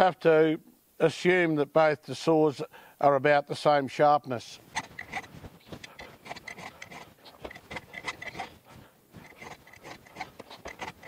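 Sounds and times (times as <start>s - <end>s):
file rasping on saw chain: 4.8s - 11.0s.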